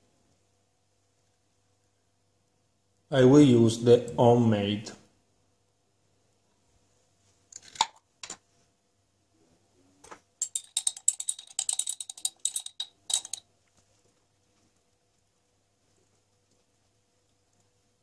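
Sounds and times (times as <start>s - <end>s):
spoon clinking on glass jar: 10.4s - 13.4s.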